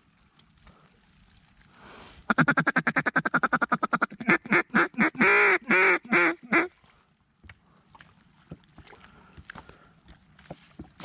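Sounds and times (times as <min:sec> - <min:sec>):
duck call clucks and quacks: 0:02.3 - 0:06.7.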